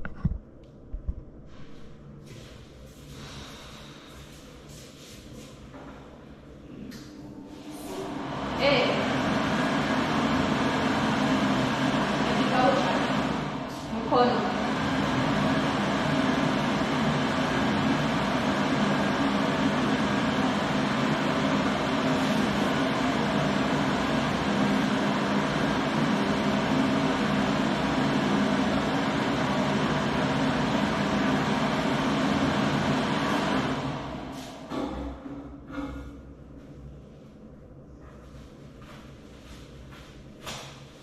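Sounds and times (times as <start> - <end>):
electric hand dryer blowing: 7.6 - 34.5.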